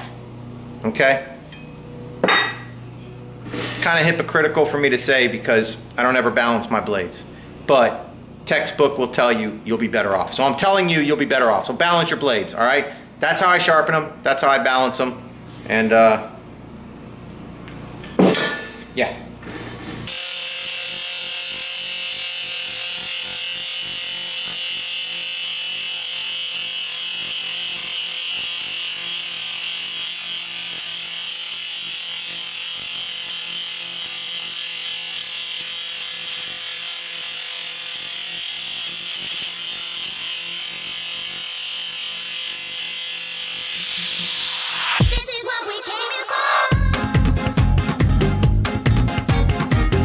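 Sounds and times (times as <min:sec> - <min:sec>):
angle grinder grinding steel: 0:19.8 - 0:45.2.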